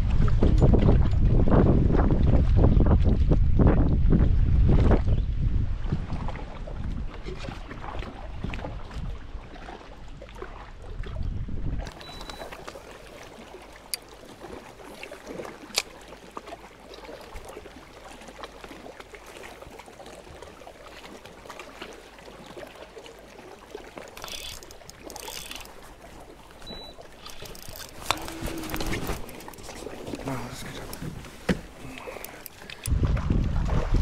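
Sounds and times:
waves lapping against hull: 0:00.0 - 0:34.0
light knocks on hull: 0:31.0 - 0:31.8.

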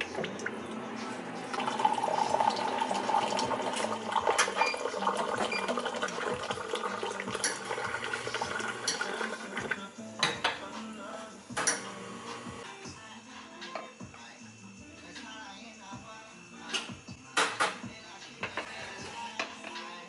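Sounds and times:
portafilter clicks and clanks: 0:07.4 - 0:09.3, 0:11.6 - 0:12.0.

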